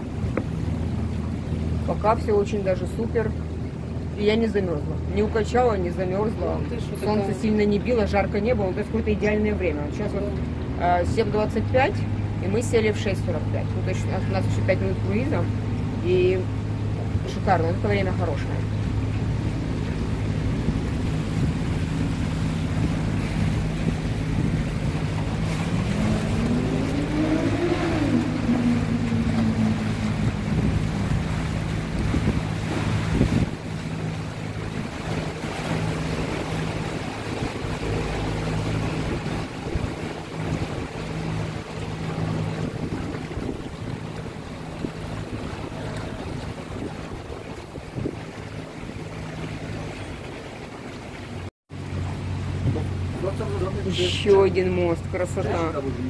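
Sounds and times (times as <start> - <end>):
boat motor humming: 0.0 - 56.0
water wash: 0.0 - 56.0
wind on microphone: 17.9 - 50.8
rising and falling tone: 25.7 - 30.7.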